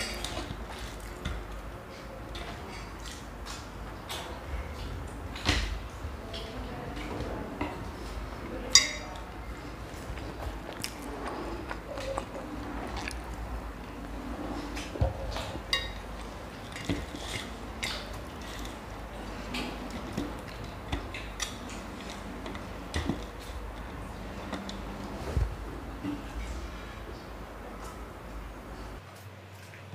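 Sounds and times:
chewing mouth sounds: 9.8 - 25.1.

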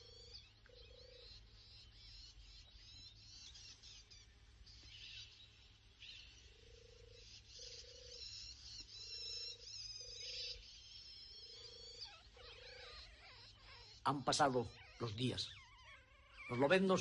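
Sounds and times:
faint birdsong chirping: 0.0 - 17.0
low trilled bird call: 9.0 - 17.0.

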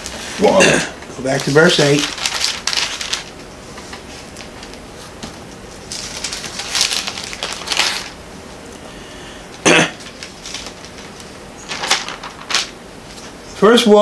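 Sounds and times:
thin pages rustling: 1.2 - 8.2, 10.0 - 13.4.

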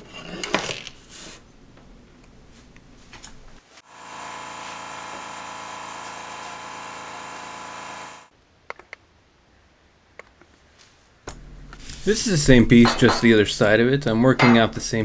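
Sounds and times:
electric motor whining: 3.9 - 8.3.

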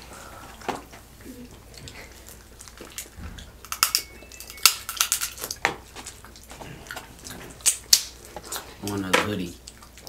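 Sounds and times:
shells cracking: 2.6 - 6.5, 7.6 - 8.5.

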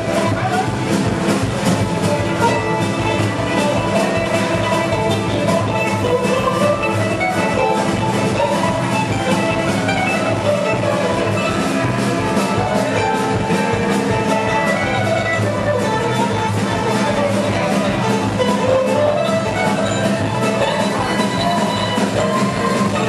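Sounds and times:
acoustic guitars: 0.0 - 23.0
drum kit steady beat: 0.0 - 23.0
fiddle: 0.0 - 23.0
mandolin: 0.0 - 23.0.

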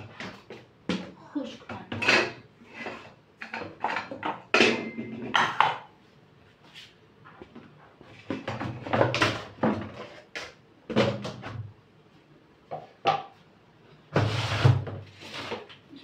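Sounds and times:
plastic containers knocking and scraping: 0.0 - 5.9, 7.3 - 11.7.

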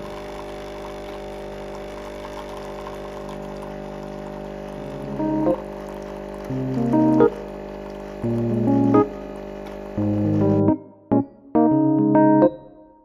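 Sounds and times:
coffee machine pump buzzing: 0.0 - 10.7
music notes: 6.5 - 7.4, 8.2 - 9.2, 10.0 - 13.0.

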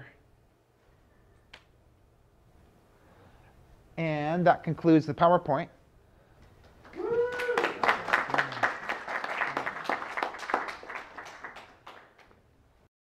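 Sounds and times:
audience applauding: 6.8 - 12.4.

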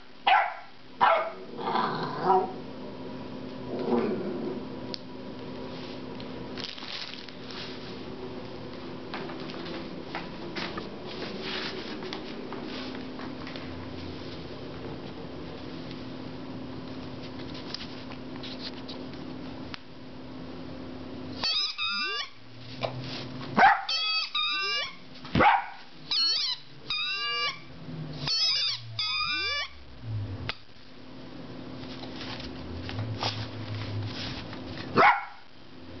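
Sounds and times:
puppy barking and yipping: 0.3 - 1.4, 21.4 - 22.4, 23.6 - 27.6, 28.2 - 29.8, 35.0 - 35.4.

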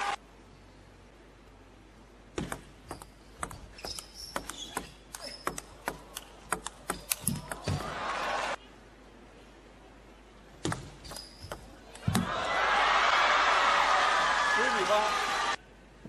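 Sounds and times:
ping pong ball hitting rackets: 2.4 - 7.9
shoes squeaking on floor: 2.9 - 5.6, 11.0 - 11.7.

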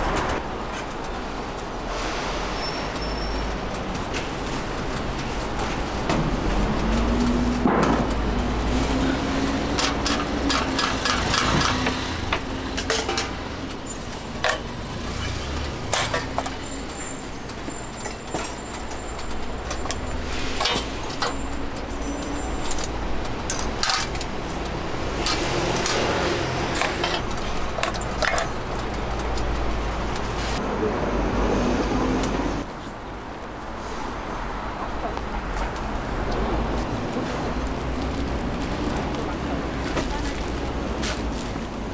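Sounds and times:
metallic clicks and clinks: 6.6 - 30.3.

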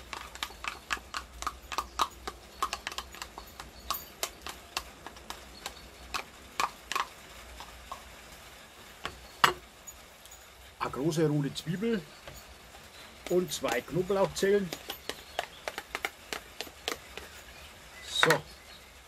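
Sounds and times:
spoon knocking on bowl: 14.7 - 17.3.

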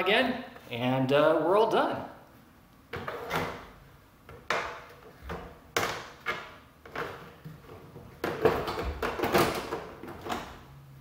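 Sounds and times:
plastic cover clacking and knocking: 4.3 - 10.5.

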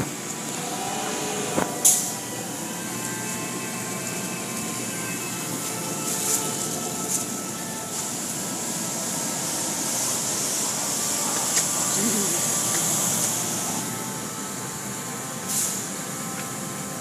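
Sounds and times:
water spray hissing: 5.7 - 14.0.

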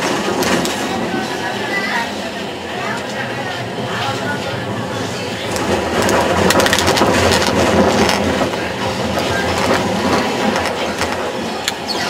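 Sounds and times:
tram wheels rumbling on rails: 0.0 - 12.0
rapid clattering clicks: 5.0 - 12.0.

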